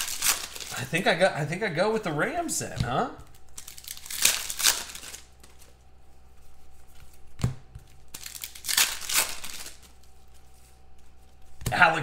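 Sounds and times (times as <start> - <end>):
foil wrapper crinkling and tearing: 0.0 - 0.9, 3.3 - 5.8, 7.9 - 11.4.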